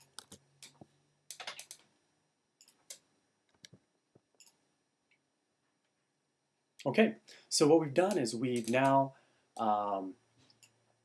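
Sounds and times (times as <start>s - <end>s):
keyboard typing: 0.0s - 1.8s, 8.0s - 9.0s.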